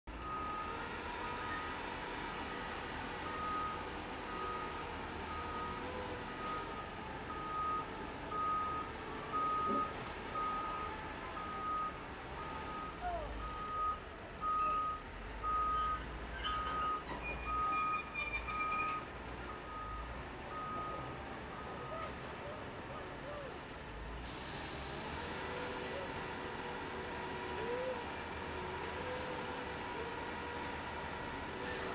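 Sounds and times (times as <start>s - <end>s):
diesel engine rumble: 0.1s - 31.9s
reversing alarm beeping: 0.2s - 1.8s, 3.2s - 22.1s.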